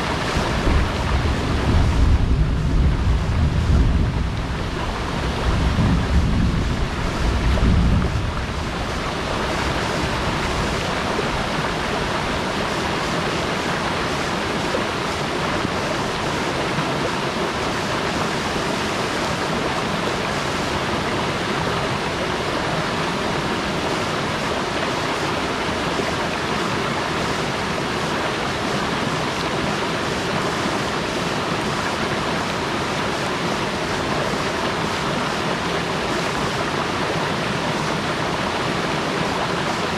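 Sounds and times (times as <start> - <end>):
wind buffeting microphone: 0.0 - 12.7
stream cascading over boulders: 0.0 - 39.9.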